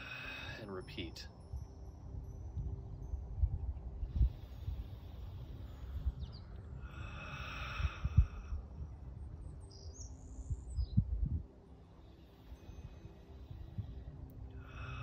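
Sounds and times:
birds chirping: 3.8 - 15.0.

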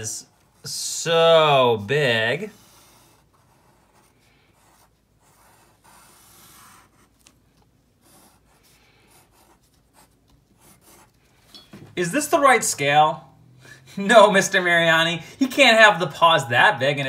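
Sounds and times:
pencil scratching on paper: 2.5 - 11.3.

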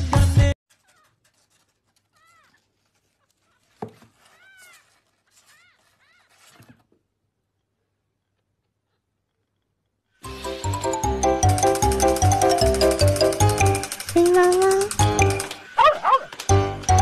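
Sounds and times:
kitten scrambling in cardboard box: 0.7 - 6.9.

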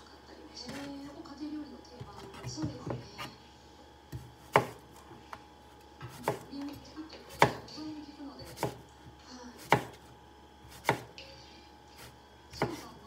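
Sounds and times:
knife slicing cucumber: 4.1 - 4.9, 6.1 - 6.7, 7.3 - 7.7, 8.4 - 8.8, 9.6 - 10.1, 10.7 - 11.1, 12.0 - 13.0.

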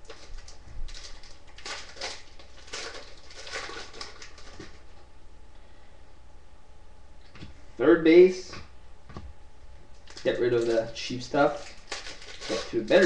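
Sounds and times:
cards and foil wrapper rustling: 0.0 - 5.0, 9.9 - 13.0.

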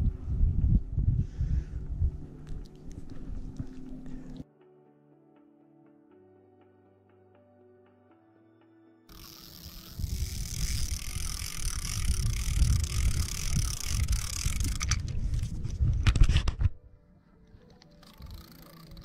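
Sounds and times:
wind buffeting microphone: 0.0 - 4.4, 9.9 - 16.9.

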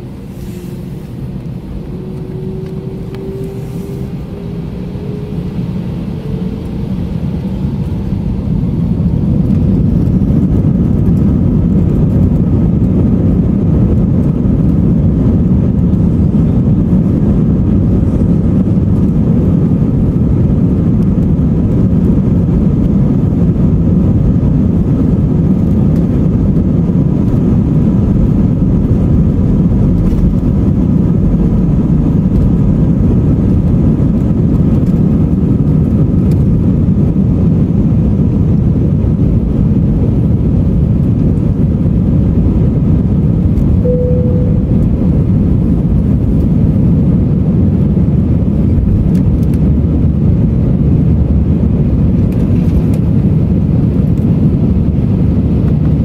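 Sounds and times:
brief cabin tone: 0.0 - 7.0, 43.7 - 45.9
jet engines roaring in cabin: 0.0 - 56.0.

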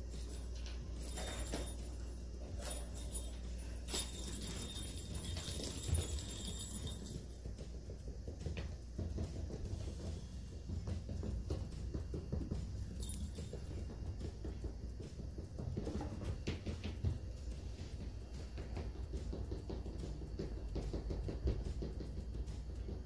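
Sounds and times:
kittens' paws pattering on cork mat: 0.0 - 22.3.

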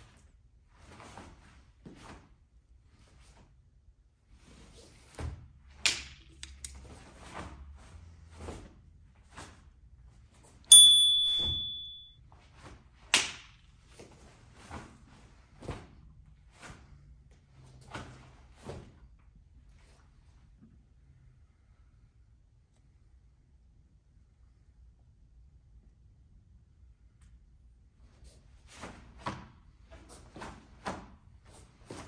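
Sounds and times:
uniform snapping: 5.8 - 6.8
high ringing tone: 10.7 - 12.2.

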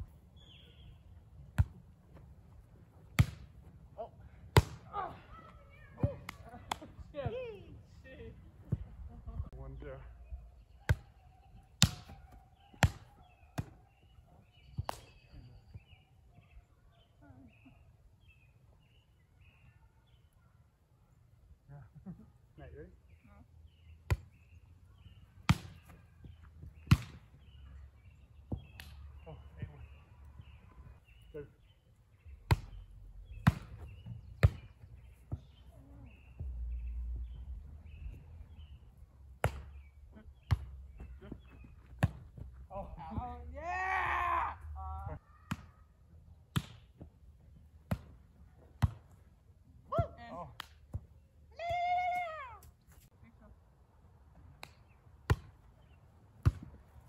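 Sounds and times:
volleyball hit by hands: 3.1 - 3.5, 11.8 - 13.8, 26.8 - 27.2, 32.5 - 35.6, 39.4 - 39.8, 46.5 - 46.9, 47.8 - 48.2, 54.6 - 55.6
volleyball hand smacks: 46.5 - 46.9.

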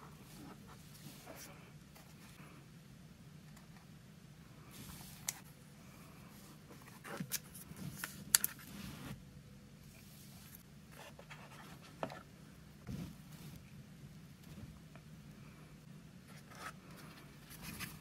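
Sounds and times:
cardboard sliding and rubbing: 12.9 - 13.6.

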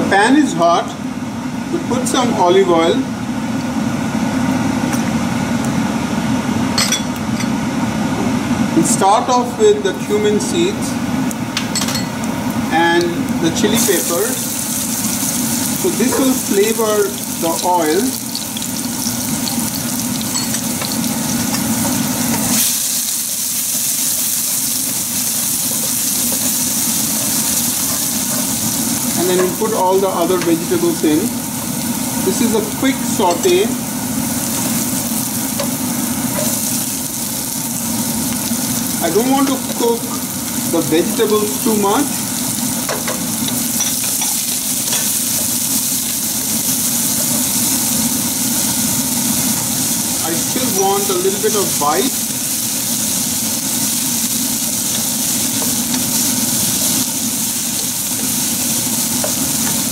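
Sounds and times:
spices sizzling in hot oil: 8.8 - 59.9
spatula stirring in wok: 18.3 - 29.7.

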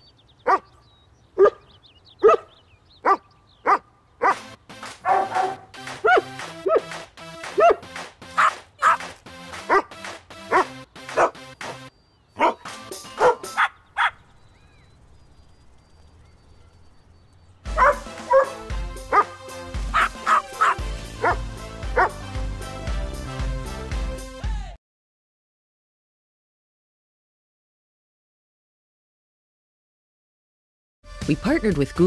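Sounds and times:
dogs barking: 0.4 - 0.8, 1.4 - 14.2, 17.7 - 22.2
background music: 4.2 - 14.1, 17.6 - 24.8, 31.0 - 32.0.

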